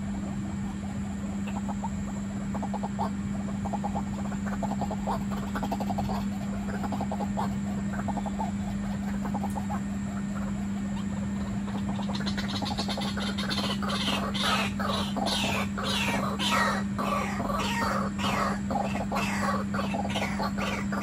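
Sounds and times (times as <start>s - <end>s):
low croaking bird clucks: 0.0s - 21.0s
steady low hum: 0.0s - 21.0s
high squeaky bird calls: 10.4s - 21.0s.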